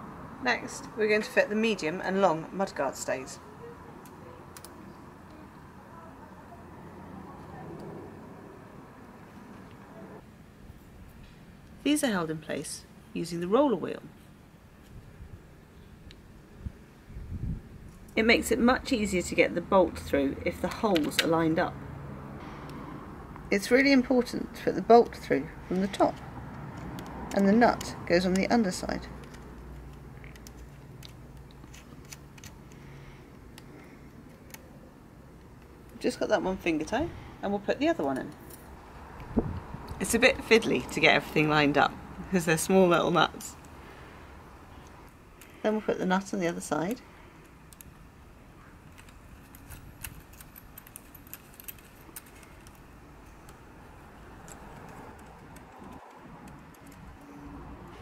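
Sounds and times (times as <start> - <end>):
fingers clicking bolt and nut: 48.8 - 53.6.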